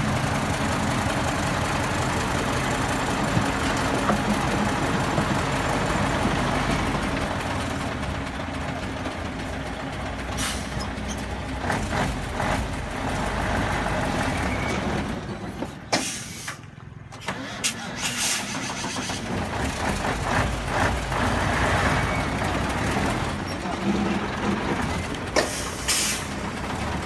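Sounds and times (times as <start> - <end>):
diesel engine running: 0.0 - 27.0.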